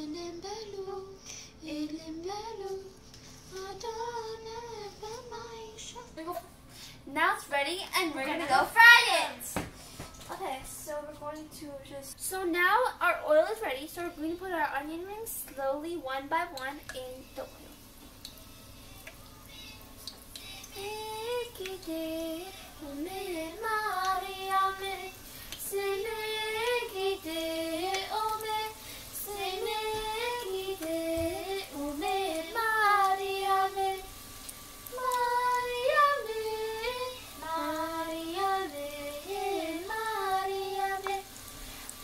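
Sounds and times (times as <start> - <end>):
child singing: 0.0 - 2.9, 3.5 - 6.5, 20.7 - 34.2, 34.9 - 41.3.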